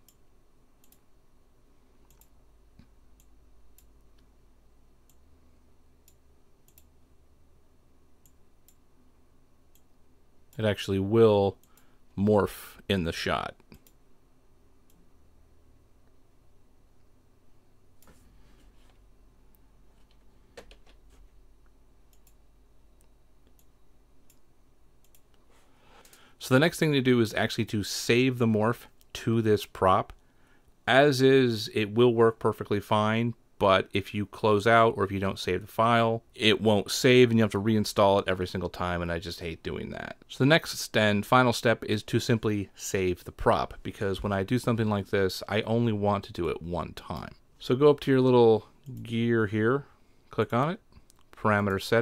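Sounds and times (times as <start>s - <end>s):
low steady hum: 0.0s - 52.0s
computer mouse clicks: 0.8s - 1.1s, 2.0s - 4.3s, 6.0s - 6.9s, 13.7s - 14.0s, 22.1s - 22.4s, 23.0s - 25.4s, 26.0s - 26.2s.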